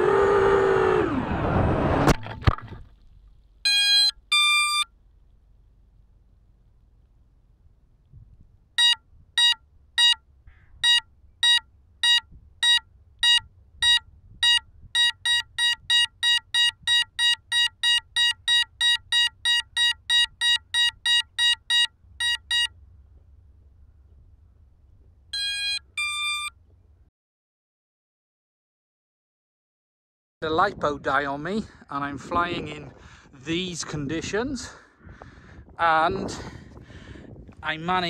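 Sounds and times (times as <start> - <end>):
longer electronic tones: 3.6 - 4.9, 8.8 - 10.2, 10.8 - 22.8, 25.4 - 26.6
short high electronic beeps: 3.7 - 4.9, 10.8 - 22.7, 25.4 - 26.5
faint low rumble: 21.9 - 25.4.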